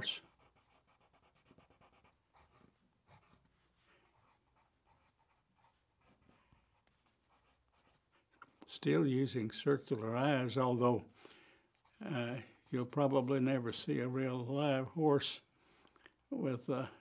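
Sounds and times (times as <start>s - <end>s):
pencil scratching on paper: 0.0s - 8.3s.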